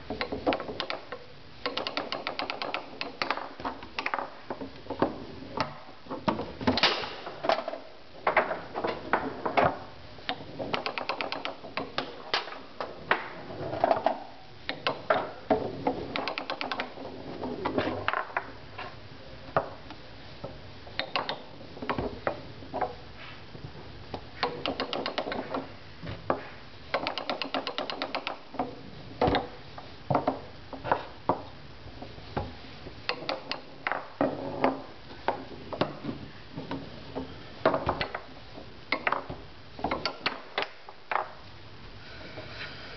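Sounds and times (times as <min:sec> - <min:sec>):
foosball ball clicks and knocks: 0:00.1 - 0:19.8, 0:20.4 - 0:23.0, 0:24.2 - 0:31.6, 0:32.4 - 0:41.4.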